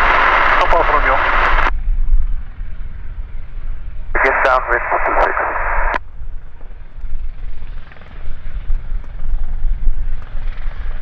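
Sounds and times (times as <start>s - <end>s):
helicopter rotor and turbine rumble: 0.0s - 11.0s
radio transmission click: 4.2s - 6.0s.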